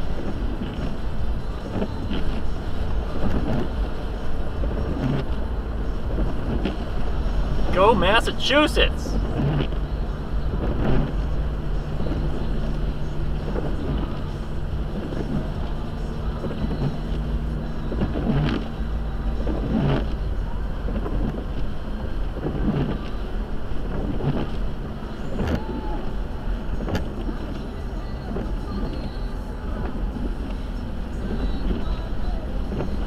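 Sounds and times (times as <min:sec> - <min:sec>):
car engine and tyres rumbling: 0:00.0 - 0:33.0.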